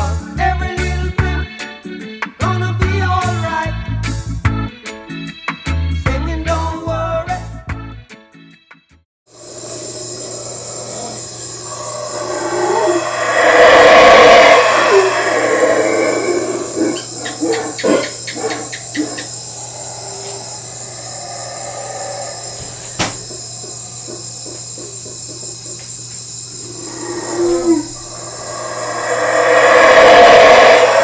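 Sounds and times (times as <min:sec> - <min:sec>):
crickets chirping: 0:09.3 - 0:31.0
rushing sound: 0:11.6 - 0:16.9, 0:26.8 - 0:31.0.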